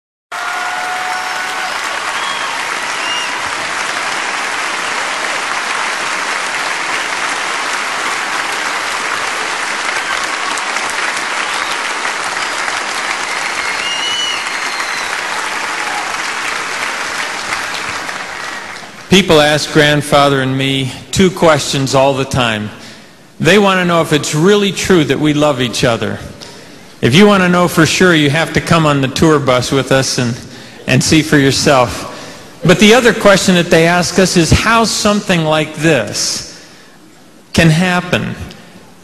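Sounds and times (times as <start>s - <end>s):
audience applauding: 0.3s - 19.1s
whistles: 1.7s - 3.5s, 11.4s - 15.2s.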